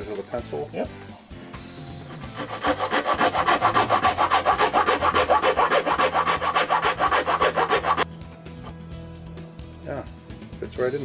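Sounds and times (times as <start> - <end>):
hand file rasping on wood: 2.0 - 8.1.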